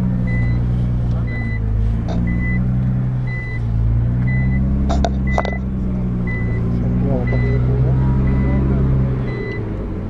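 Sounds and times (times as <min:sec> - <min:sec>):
car engine idling: 0:00.0 - 0:10.0
warning chime beeping: 0:01.3 - 0:02.6, 0:04.3 - 0:05.6, 0:06.3 - 0:09.6.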